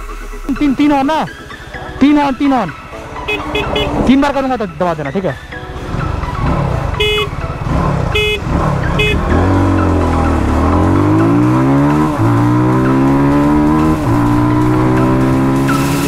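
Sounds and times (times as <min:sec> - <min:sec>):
motorcycle engines accelerating: 0:00.8 - 0:16.0
motorcycle horn beeps: 0:03.2 - 0:04.0, 0:06.9 - 0:07.4, 0:08.1 - 0:09.5.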